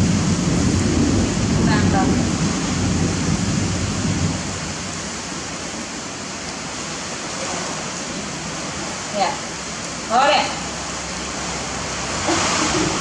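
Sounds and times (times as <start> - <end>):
thunder rumble: 0.0 - 6.8, 9.5 - 13.0
heavy rain pouring: 0.0 - 13.0.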